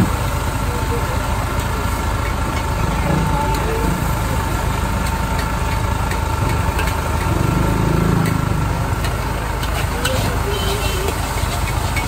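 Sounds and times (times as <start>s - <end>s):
low mechanical roar: 0.0s - 12.0s
metal spatula scraping a wok: 9.0s - 12.0s.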